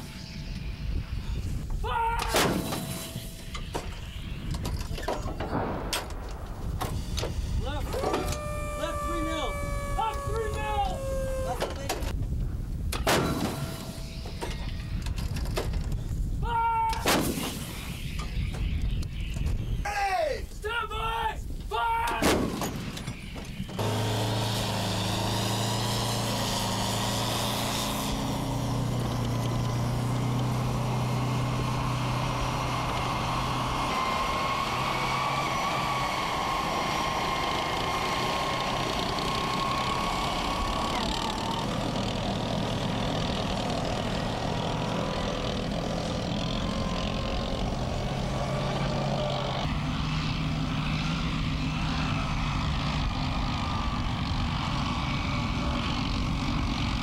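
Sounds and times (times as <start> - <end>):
diesel engine under load: 6.6 - 12.2, 22.6 - 57.0
thin high whine: 6.9 - 12.1.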